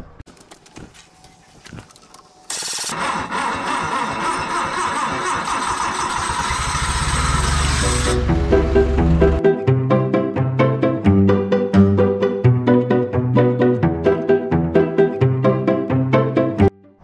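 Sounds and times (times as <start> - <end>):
forklift engine starting and running: 2.5 - 9.4
background music: 7.7 - 17.0.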